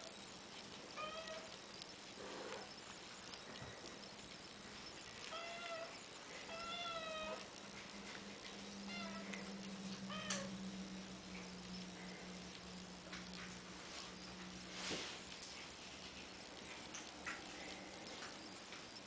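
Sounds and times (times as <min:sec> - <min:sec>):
kittens meowing: 0:05.2 - 0:07.6, 0:08.9 - 0:10.6.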